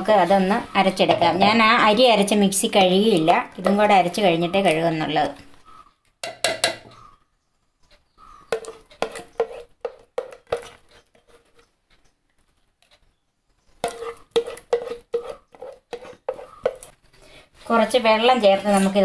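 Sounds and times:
spoon knocking on steel jar: 6.2 - 6.9, 8.5 - 10.8, 13.8 - 16.9.

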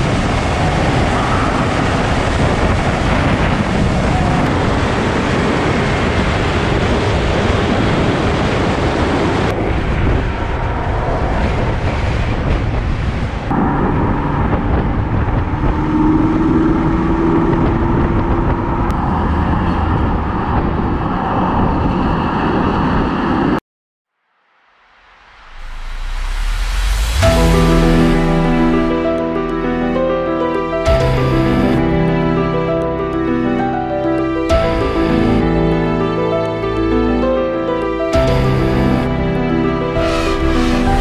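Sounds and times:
road and wind noise: 0.0 - 23.6, 24.7 - 41.0
car engine tone: 13.5 - 19.6, 25.4 - 41.0.

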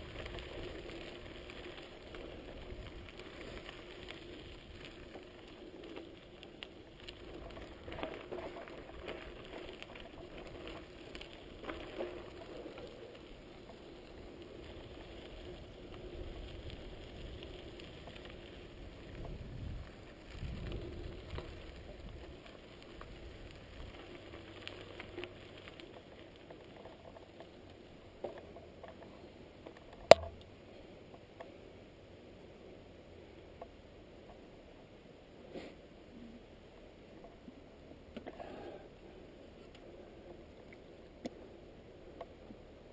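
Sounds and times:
bike rattling: 0.0 - 27.7
bicycle tyres on gravel: 0.0 - 42.9.

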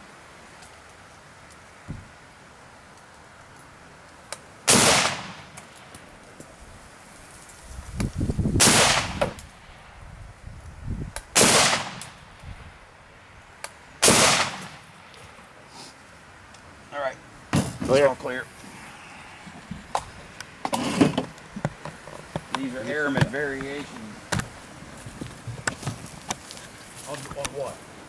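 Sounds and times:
rifle shots with echo: 4.7 - 5.7, 8.6 - 9.7, 11.4 - 12.3, 14.0 - 15.1.

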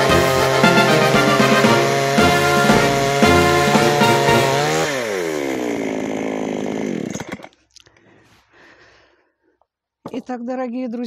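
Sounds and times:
chainsaw running: 0.0 - 7.6.

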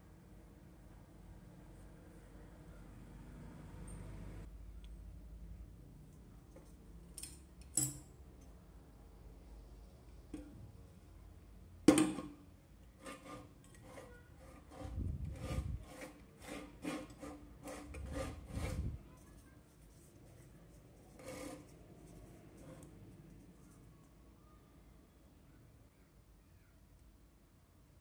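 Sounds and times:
rubbing scraping strokes: 13.0 - 22.9.

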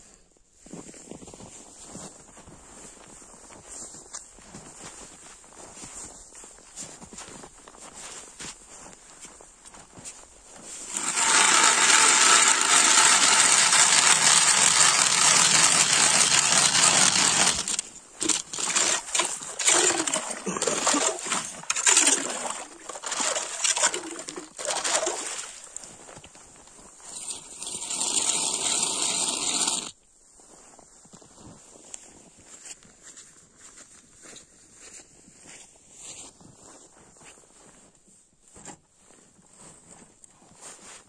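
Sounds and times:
ice auger grinding: 10.6 - 26.0, 26.9 - 30.0
ice scraping strokes: 10.6 - 26.2, 26.8 - 30.0.

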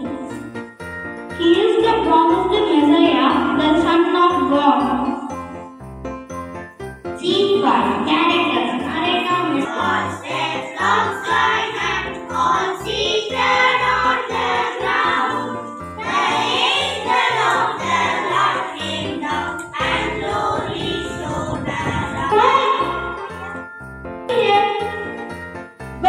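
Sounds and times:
instrumental accompaniment: 0.0 - 26.0
children's choir singing: 8.9 - 23.2.

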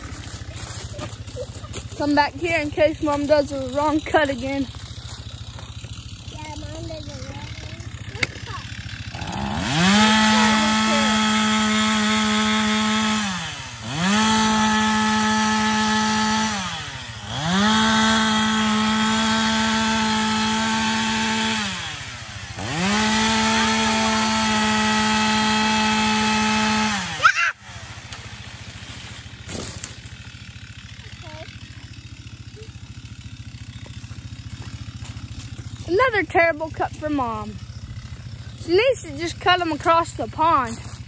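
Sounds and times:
chainsaw cutting tree: 0.0 - 41.0
sharp wood crack: 7.8 - 10.3, 28.0 - 31.0.

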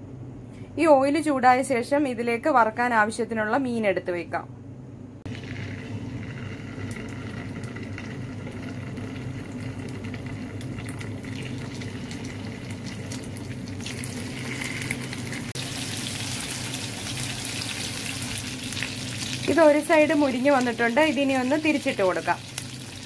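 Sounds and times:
fish sizzling in hot oil: 5.3 - 23.0.

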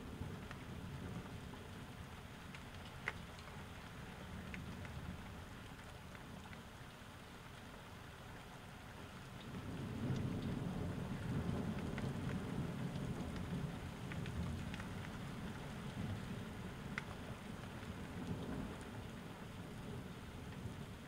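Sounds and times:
low rumble of thunder: 0.0 - 2.2, 9.3 - 21.0
rain falling: 0.0 - 21.0
sharp drip ticks: 2.4 - 7.0, 11.4 - 16.2, 16.9 - 19.1.

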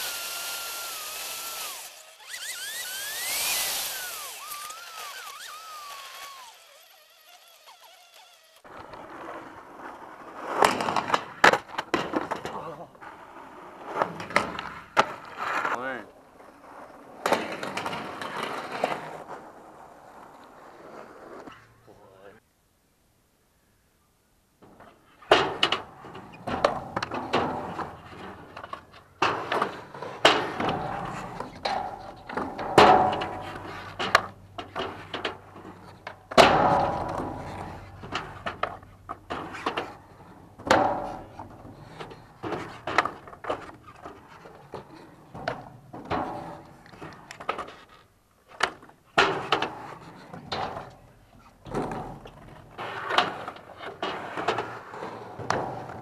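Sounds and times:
skateboard wheels rolling: 0.0 - 22.4, 24.7 - 56.0
skateboard clacks and thuds: 8.7 - 15.8, 16.4 - 21.5, 24.8 - 56.0.

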